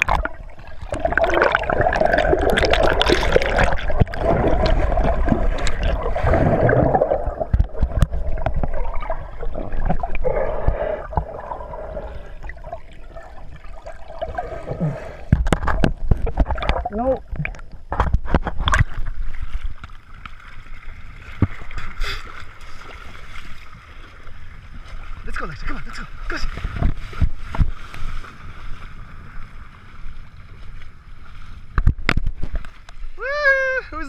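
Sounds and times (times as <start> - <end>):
muffled underwater gurgling: 0.0 - 19.0
bubbles: 0.0 - 19.9
paddling in water: 0.0 - 34.0.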